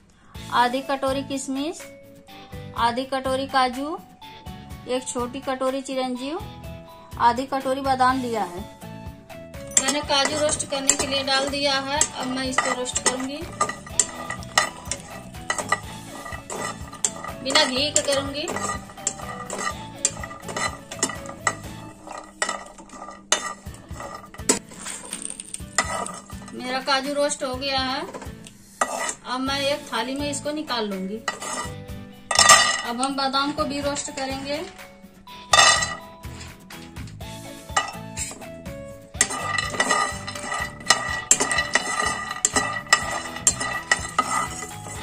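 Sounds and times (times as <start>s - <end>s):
metal spoon scraping pan: 9.6s - 29.9s, 31.2s - 34.8s, 35.5s - 45.0s.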